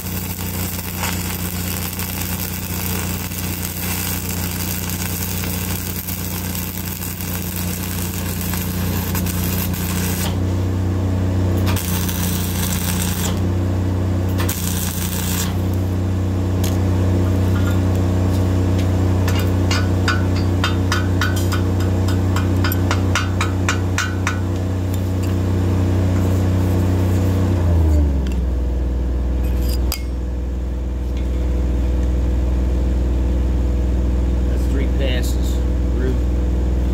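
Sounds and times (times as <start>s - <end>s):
welding arc crackling and hissing: 0.0s - 10.5s, 11.5s - 13.6s, 14.2s - 16.0s
engine hum: 0.0s - 36.9s.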